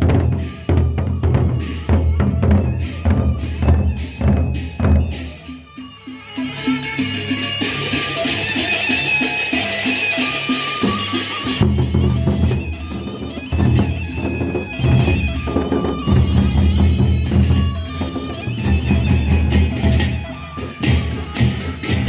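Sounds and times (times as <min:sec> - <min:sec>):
large barrel drums beating: 0:00.0 - 0:05.4, 0:10.8 - 0:22.0
hand cymbals clashing: 0:00.1 - 0:22.0.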